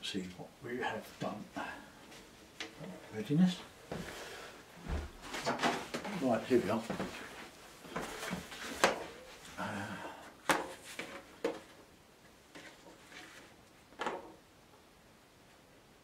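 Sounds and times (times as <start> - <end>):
card and paper rustling: 12.5 - 13.6.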